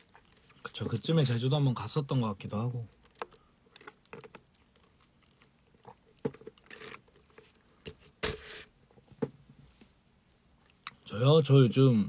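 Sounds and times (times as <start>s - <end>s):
slurping through a straw: 3.1s - 7.7s.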